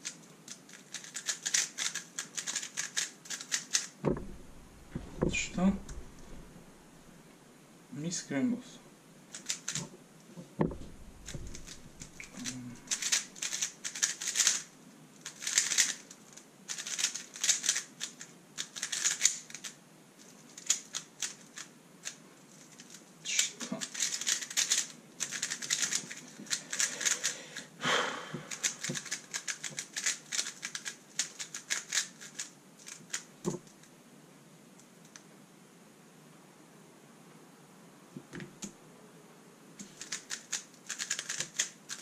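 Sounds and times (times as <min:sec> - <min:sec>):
rapid plastic clicking of puzzle cube: 0:00.0 - 0:04.0, 0:09.3 - 0:09.9, 0:10.8 - 0:27.7, 0:28.5 - 0:33.9, 0:34.8 - 0:35.3, 0:39.8 - 0:42.0.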